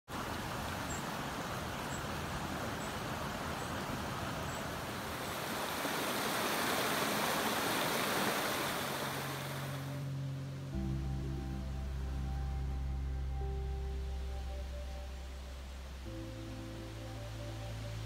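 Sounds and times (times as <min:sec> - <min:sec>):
stream running over rocks: 0:00.1 - 0:10.8.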